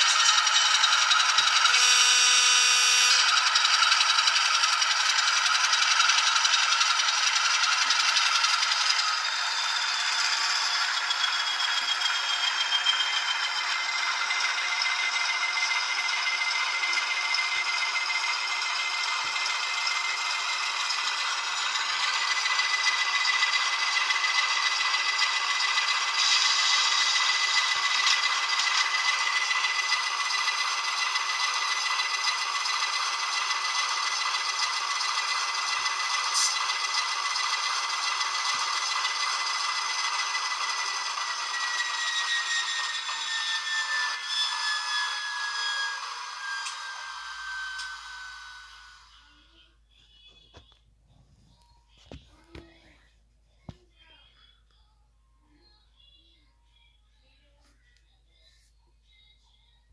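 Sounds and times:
steady high whine: 0.0 - 45.2
thin raspy diesel engine sound: 0.0 - 49.5.

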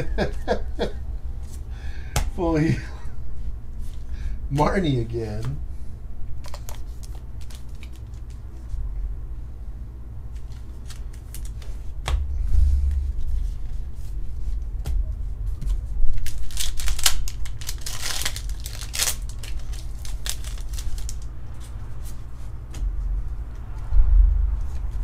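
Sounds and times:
cards rustling: 6.4 - 8.8, 10.3 - 12.0, 16.1 - 22.8
low bump: 12.1 - 16.3, 23.8 - 25.0.

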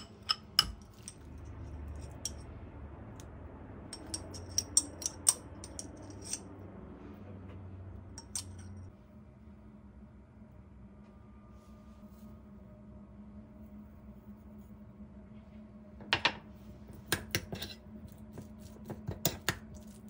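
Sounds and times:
metal spoon clinking ceramic bowls: 0.0 - 2.4, 4.0 - 6.4, 8.2 - 8.8
low steady hum: 0.0 - 20.0.

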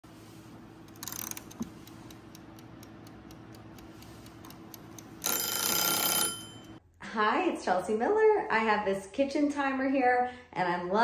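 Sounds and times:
mechanical kitchen timer ticking: 0.9 - 6.8
timer bell ringing: 5.2 - 6.8.

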